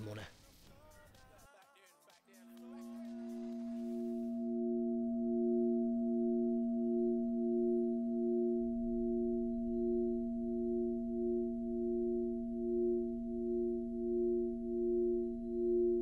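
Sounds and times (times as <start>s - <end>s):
held musical drone tones: 2.5s - 16.0s.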